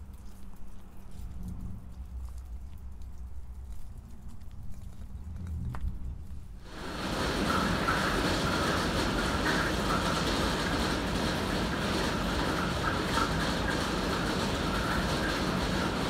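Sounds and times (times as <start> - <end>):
hail and heavy rain pelting: 6.6 - 16.0.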